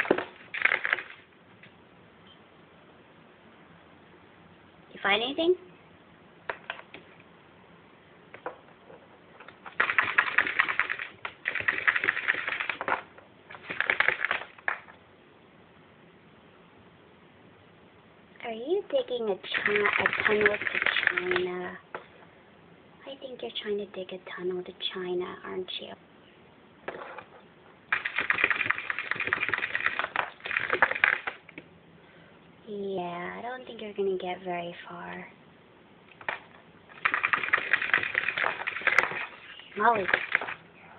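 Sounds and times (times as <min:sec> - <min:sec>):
rabbit claws scratching plastic: 0:00.0 - 0:01.3, 0:08.8 - 0:14.9, 0:19.0 - 0:21.6, 0:26.9 - 0:31.6, 0:36.2 - 0:40.7.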